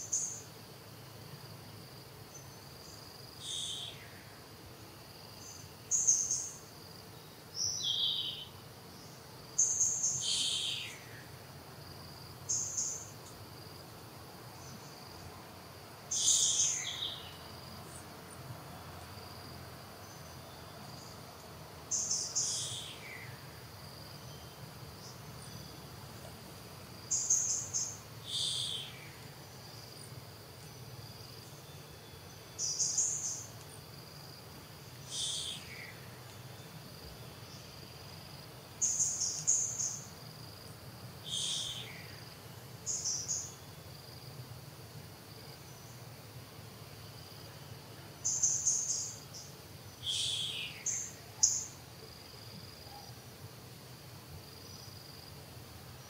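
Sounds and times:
faint insect-like hum: 0.0s - 56.0s.

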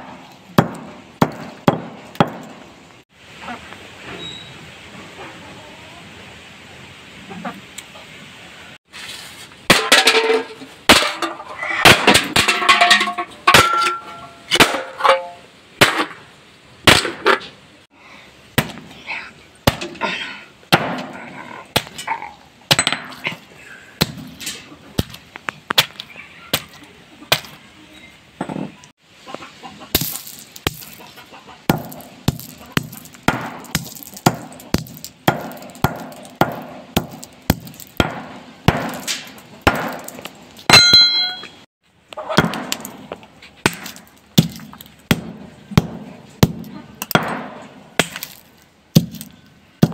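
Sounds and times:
hammer striking sunflower seeds: 30.0s - 31.0s, 31.7s - 41.1s, 42.4s - 49.9s
hammer striking cans on concrete: 31.7s - 41.5s.

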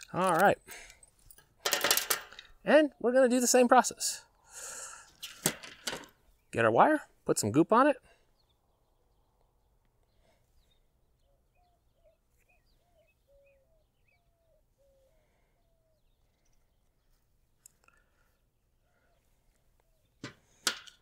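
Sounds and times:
bird chirping: 8.1s - 20.2s.

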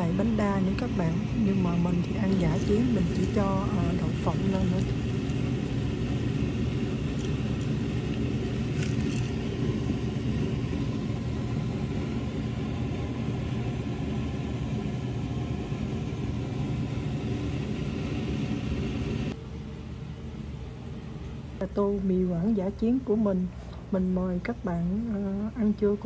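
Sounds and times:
motor humming: 0.0s - 10.4s.

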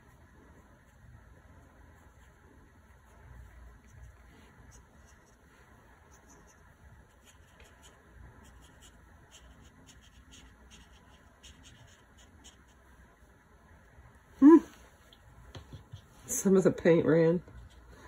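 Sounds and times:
paintbrush scratching on paper: 0.0s - 13.2s, 17.4s - 18.0s.

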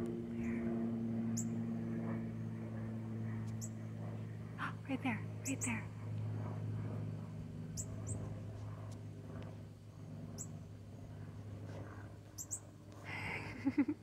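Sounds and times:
low steady hum: 0.0s - 14.0s
bird chip calls: 7.8s - 8.2s, 12.4s - 12.6s.

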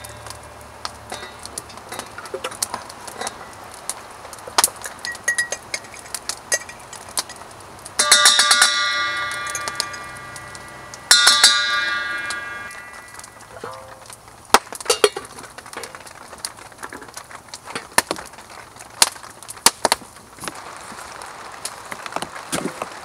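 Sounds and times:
spoon knocking steel pot: 8.0s - 13.8s.

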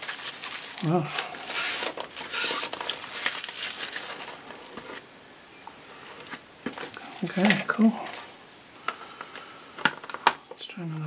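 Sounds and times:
paper rustling and crinkling: 0.0s - 5.1s, 6.0s - 8.4s.

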